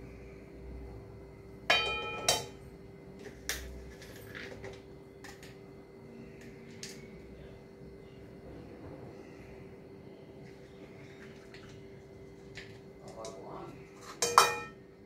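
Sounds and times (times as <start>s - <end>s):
metal spoon clanking on pan: 1.7s - 2.6s, 14.0s - 14.8s.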